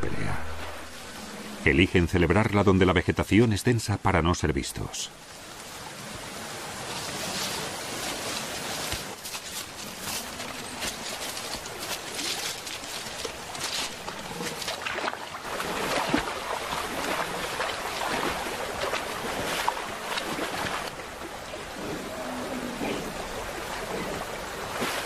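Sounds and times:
river running over stones: 0.0s - 25.0s
animal splashing through water: 5.4s - 25.0s.

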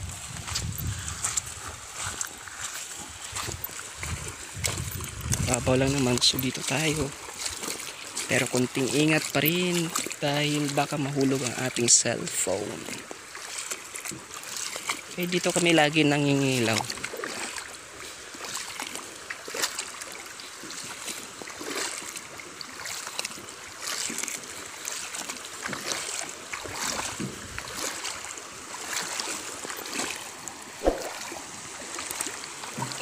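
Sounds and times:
flowing water rushing: 0.0s - 33.0s
water splashing around wading legs: 0.0s - 33.0s
sharp knock: 30.8s - 31.3s.

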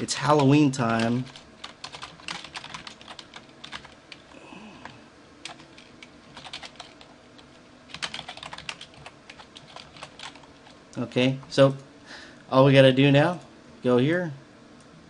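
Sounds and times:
keyboard typing clicks: 0.4s - 4.2s, 4.8s - 7.1s, 7.9s - 10.8s.

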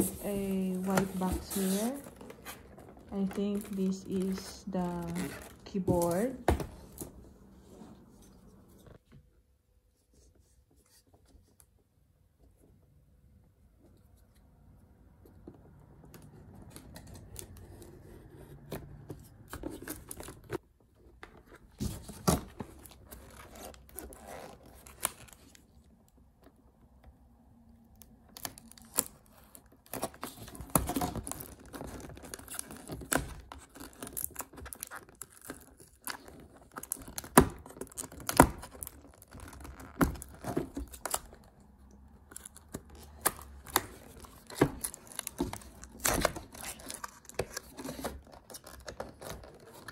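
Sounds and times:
cardboard scraping: 0.0s - 9.0s
tape peeling and tearing: 28.3s - 41.6s.

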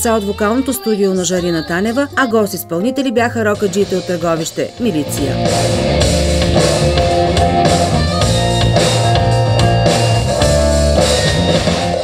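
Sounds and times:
drum kit and cymbals: 3.6s - 12.0s
bass guitar: 3.9s - 12.0s
electric guitar: 4.8s - 12.0s.

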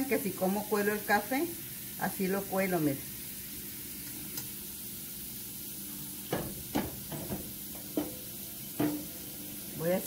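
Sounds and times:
potatoes sizzling in skillet: 0.0s - 10.0s.

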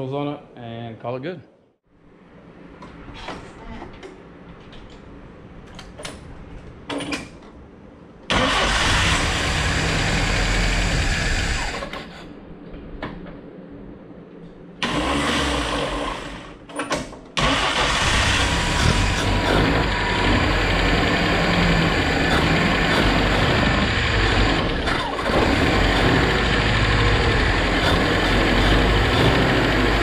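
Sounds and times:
car engine starting and running: 8.3s - 12.2s, 14.8s - 16.6s, 17.4s - 30.0s.

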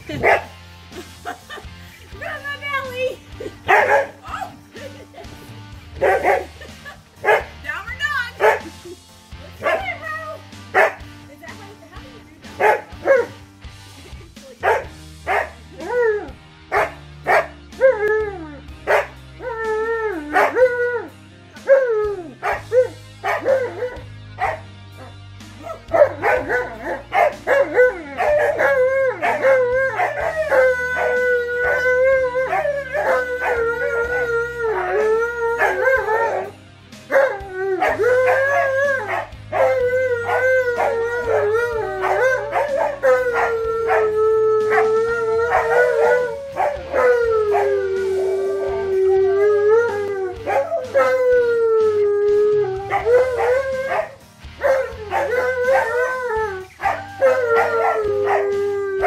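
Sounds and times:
dogs howling: 6.0s - 6.6s, 14.6s - 59.0s.

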